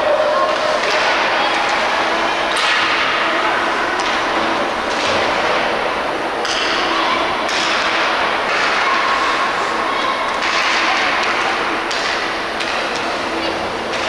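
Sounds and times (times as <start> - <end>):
hockey sticks and puck knocking: 4.0 - 5.7, 6.4 - 9.7, 10.3 - 13.3.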